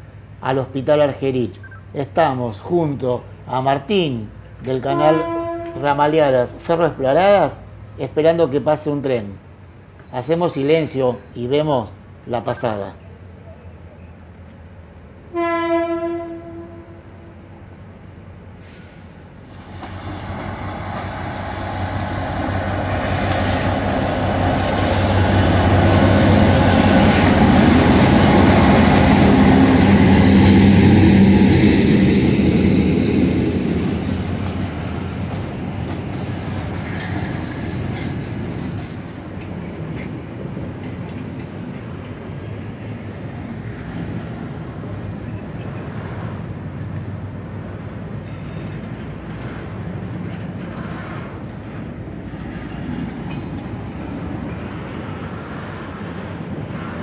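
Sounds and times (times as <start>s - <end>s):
diesel locomotive engine: 0.0s - 57.0s
train wheels rumbling on rails: 17.5s - 57.0s
high whine: 19.3s - 41.2s.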